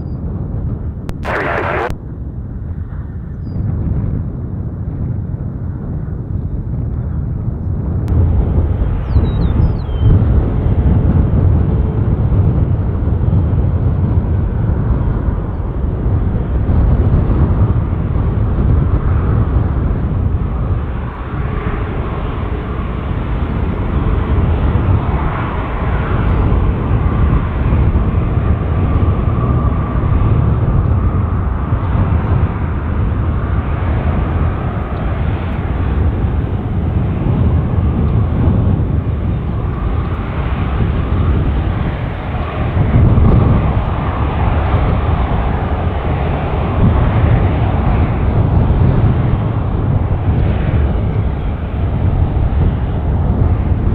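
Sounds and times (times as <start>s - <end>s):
faint engine whine: 0.0s - 53.9s
jet engines rumbling: 0.0s - 53.9s.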